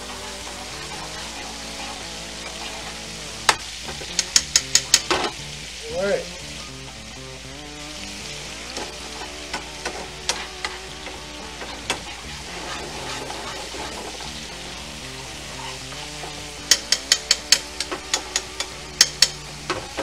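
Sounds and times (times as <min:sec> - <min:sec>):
background music: 0:00.0 - 0:20.0
garlic sizzling in oil: 0:00.0 - 0:20.0
metal spoon clicking on pan: 0:03.5 - 0:05.2, 0:16.6 - 0:19.4.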